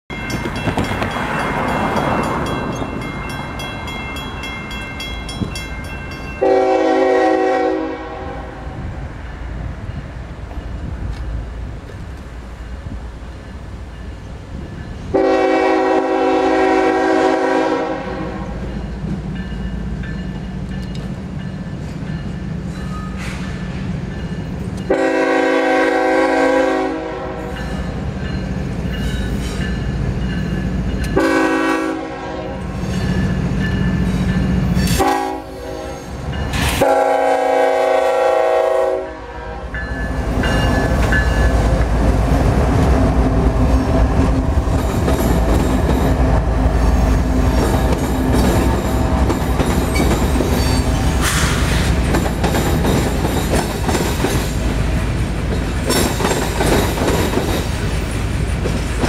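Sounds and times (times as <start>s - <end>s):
diesel locomotives rumbling: 0.1s - 59.0s
locomotive air horn blasts: 6.4s - 8.8s, 15.1s - 18.6s, 24.9s - 27.6s, 31.1s - 32.8s, 34.9s - 36.1s, 36.8s - 39.8s
wheels clattering over rails: 47.4s - 59.0s.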